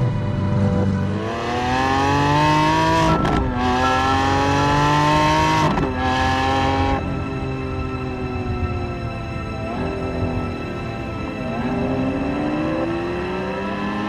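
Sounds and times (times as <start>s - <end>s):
car engine accelerating hard: 0.7s - 7.5s, 9.6s - 14.0s.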